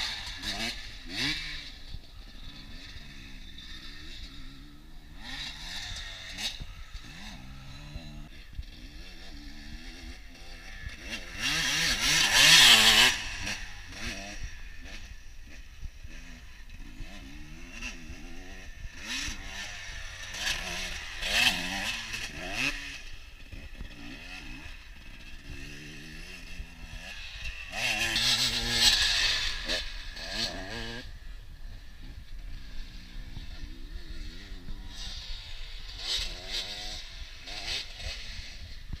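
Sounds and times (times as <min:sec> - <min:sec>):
distant dirt bike revving: 0:00.0 - 0:39.0.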